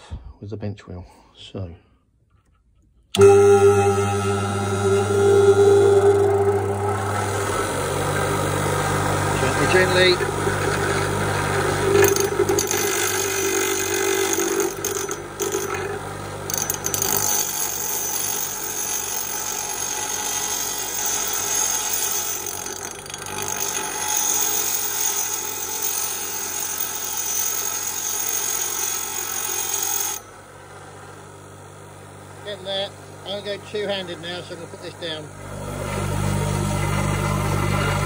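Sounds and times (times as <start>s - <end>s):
motor hum: 3.1s - 21.0s, 30.2s - 38.0s
grinding hiss and whine: 3.2s - 15.9s.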